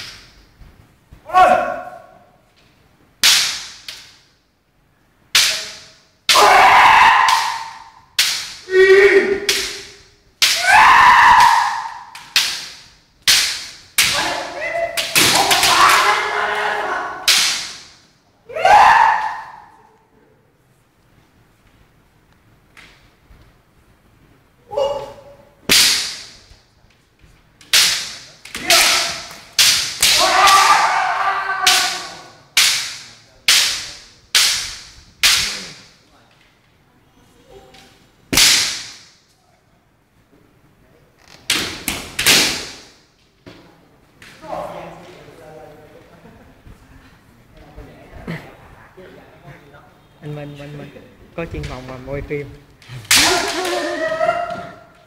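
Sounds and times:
bamboo sword strikes cracking: 3.2s - 4.3s, 5.3s - 8.7s, 9.3s - 16.1s, 17.2s - 18.0s, 25.7s - 26.5s, 27.6s - 30.9s, 31.7s - 35.8s, 38.3s - 39.2s, 41.5s - 43.0s, 53.0s - 53.9s
fencers shouting: 5.4s - 17.8s, 18.5s - 19.9s, 24.6s - 26.2s, 27.7s - 33.8s, 53.0s - 55.0s.

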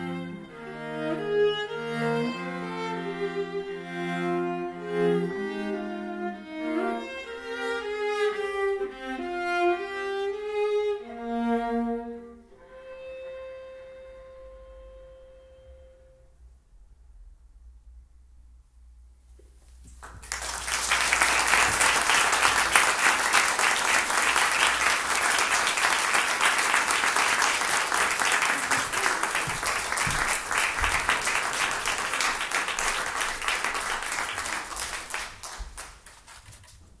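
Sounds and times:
audience applauding: 20.0s - 36.7s.

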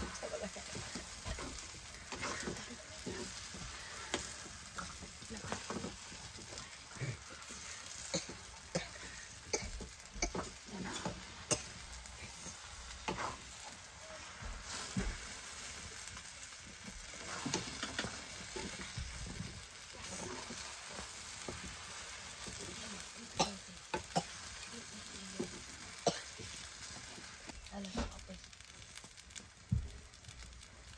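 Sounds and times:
spatula scraping metal pan: 0.0s - 6.6s, 10.2s - 13.6s, 17.1s - 19.2s
noodles sizzling in a pan: 0.0s - 30.9s.

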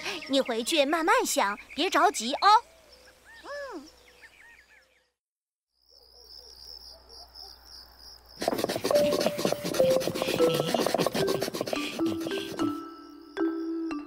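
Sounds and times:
person sighing: 3.4s - 3.9s
crickets chirping: 5.8s - 14.0s
knife blade scraping: 8.4s - 12.8s.

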